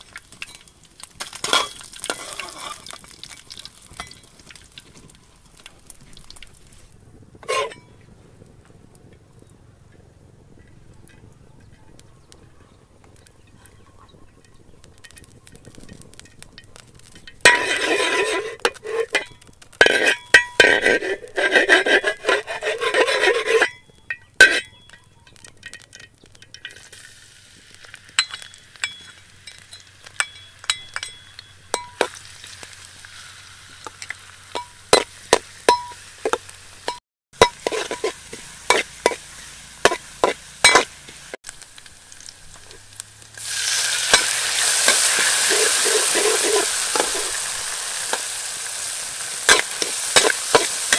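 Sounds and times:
garlic sizzling in oil: 0.0s - 8.0s, 12.2s - 50.9s
metal spatula scraping wok: 1.3s - 4.6s, 7.4s - 8.0s, 16.2s - 27.0s, 27.8s - 41.4s, 42.2s - 50.9s.

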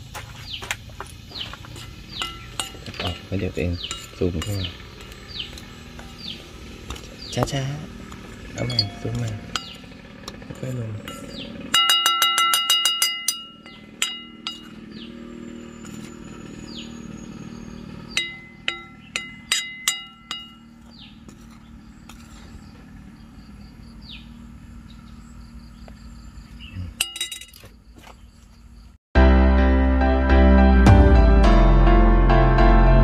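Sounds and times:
low hum: 1.2s - 26.9s
ringing clinks: 2.2s - 4.7s, 8.6s - 10.0s, 11.0s - 15.0s, 18.1s - 20.8s, 27.0s - 27.7s.

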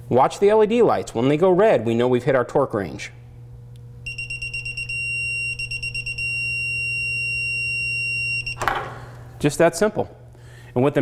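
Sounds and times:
torque wrench electronic beeps: 4.0s - 8.6s.

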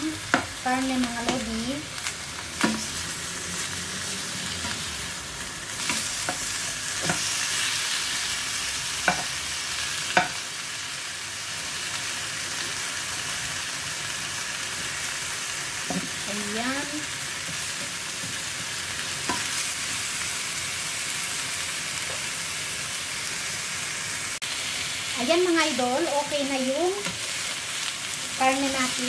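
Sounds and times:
meat sizzling in oil: 0.0s - 29.0s
spatula knocking on pan: 10.2s - 10.4s.

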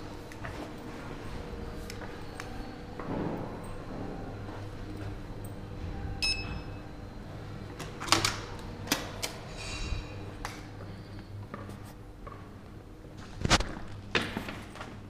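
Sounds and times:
card reader beep: 6.2s - 6.9s.

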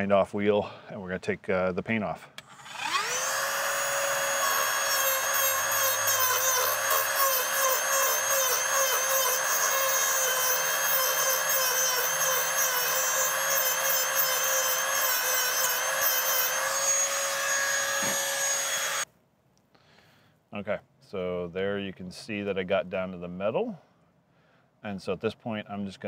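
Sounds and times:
rotary tool grinding metal: 2.4s - 19.1s.

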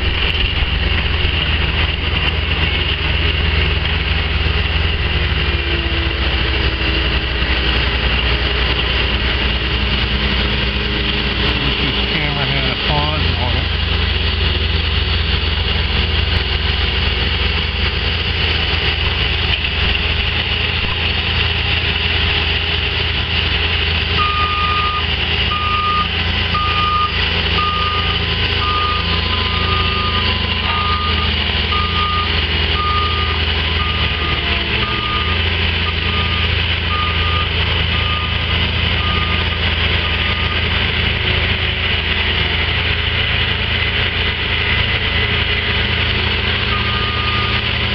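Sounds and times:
diesel machinery running: 0.0s - 47.9s
backup alarm beeping: 24.2s - 38.4s, 46.7s - 47.6s.

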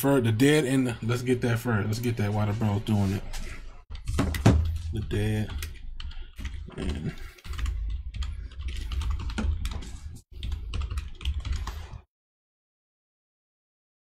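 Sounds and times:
fast keyboard typing: 3.9s - 12.1s.

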